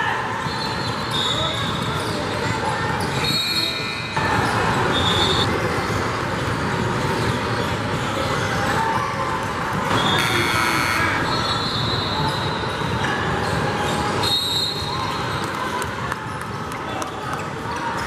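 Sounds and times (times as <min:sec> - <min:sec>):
sneakers squeaking: 0:00.4 - 0:08.8, 0:09.7 - 0:15.6.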